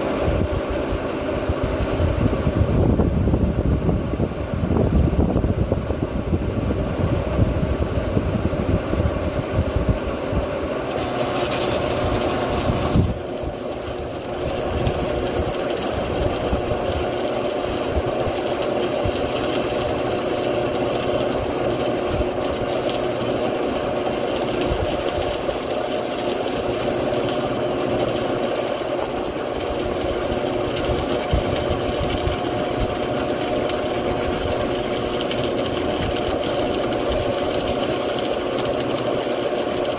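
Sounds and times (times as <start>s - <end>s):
transformer welder humming: 0.0s - 5.5s, 7.2s - 39.9s
welding arc crackling and hissing: 10.9s - 39.9s.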